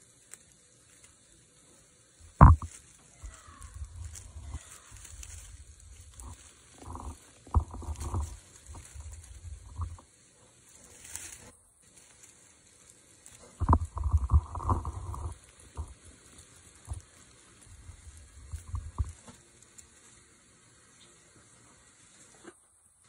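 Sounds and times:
dry leaves rustling: 0.0 - 22.6
rumbling bumps on microphone: 2.3 - 10.0, 13.5 - 16.1, 17.7 - 19.3.

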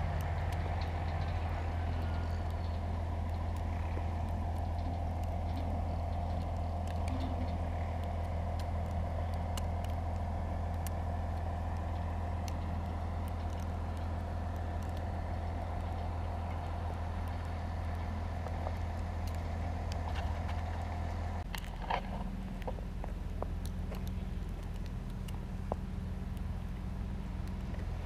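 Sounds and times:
faint ticks: 0.0 - 21.9
engine idling: 0.0 - 28.0.

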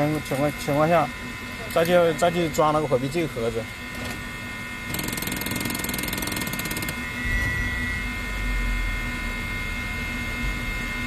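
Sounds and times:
short beep: 7.2 - 8.2.

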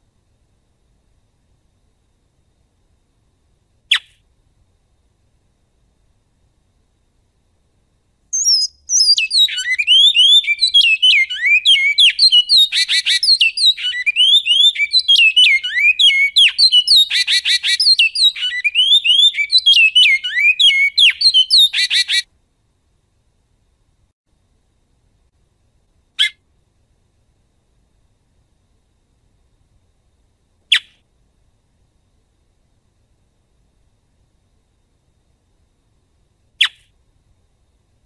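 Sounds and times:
finch singing whistled notes: 8.3 - 22.2.

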